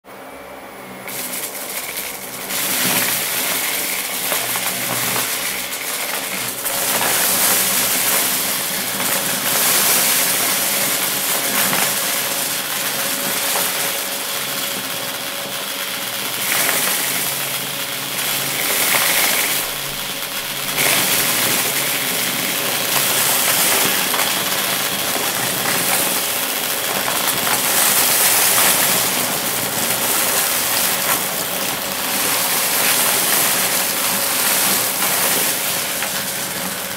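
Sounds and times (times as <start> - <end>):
vacuum cleaner motor whine: 0.0 - 36.9
debris rattling up vacuum head: 1.0 - 36.9.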